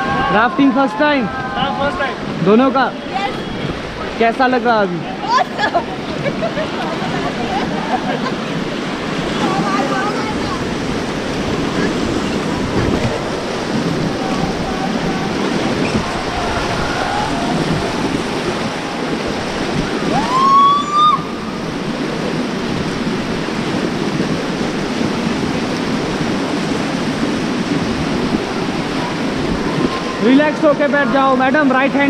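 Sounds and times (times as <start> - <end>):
whitewater rapids rushing: 0.0 - 32.0
short rising whistle: 20.1 - 21.3.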